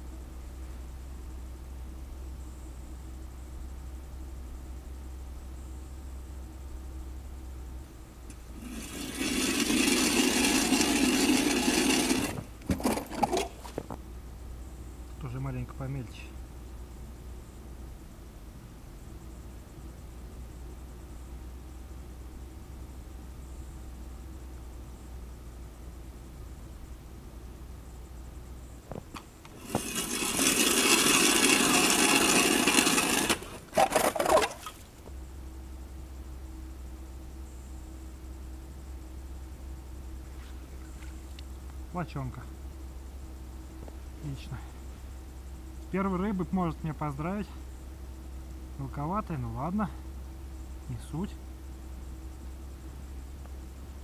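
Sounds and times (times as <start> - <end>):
ice auger scraping through ice: 8.6 - 13.7, 29.5 - 34.8.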